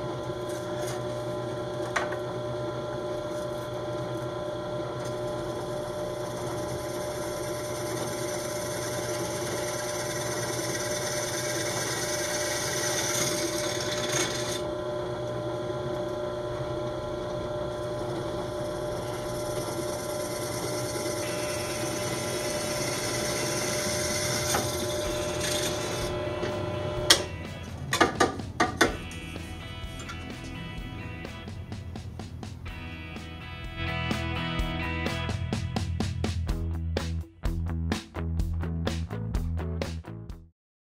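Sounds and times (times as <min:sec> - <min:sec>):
drill press motor hum: 0:00.0 - 0:32.5
drill bit grinding hiss: 0:05.0 - 0:14.8, 0:16.8 - 0:27.7.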